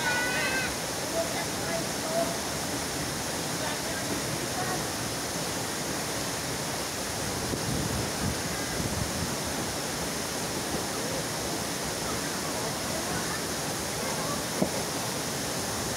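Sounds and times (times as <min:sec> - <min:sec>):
waterfall rushing: 0:00.0 - 0:15.9.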